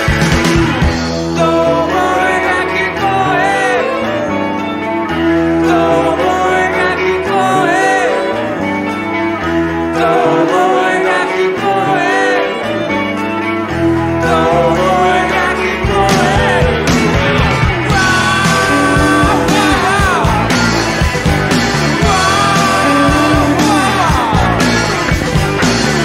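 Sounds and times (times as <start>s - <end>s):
electric guitar lead melody bending: 0.0s - 26.0s
rock band playing live: 0.0s - 26.0s.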